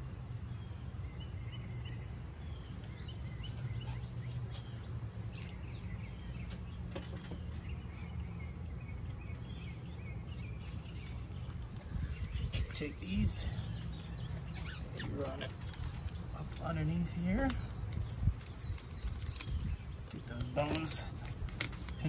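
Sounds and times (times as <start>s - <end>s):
small birds chirping: 0.0s - 22.0s.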